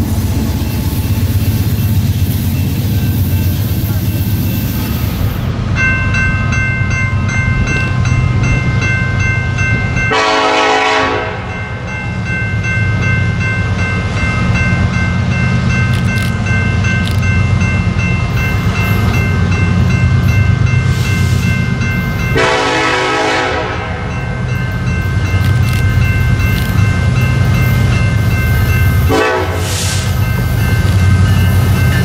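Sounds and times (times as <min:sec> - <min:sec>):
train rumbling: 0:00.0 - 0:32.0
train horn chord: 0:10.1 - 0:11.5, 0:22.4 - 0:24.3, 0:29.1 - 0:30.0.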